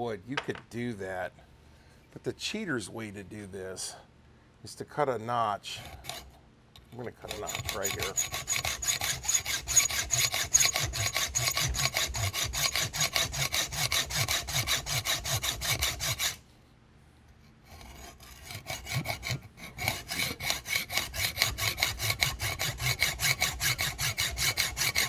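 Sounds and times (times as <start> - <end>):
hacksaw cutting steel: 5.8 - 6.3, 7.0 - 16.4, 17.6 - 25.0.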